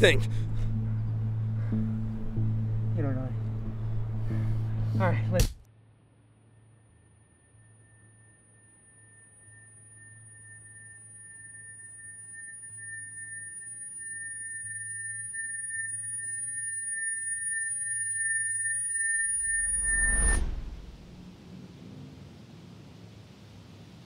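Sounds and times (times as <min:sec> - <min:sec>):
high-pitched electronic ringing tone: 0:06.5 - 0:21.0.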